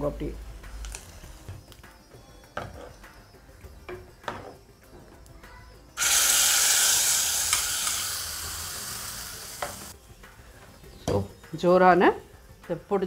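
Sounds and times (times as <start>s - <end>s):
hot oil sizzling in a pot: 6.0s - 10.0s.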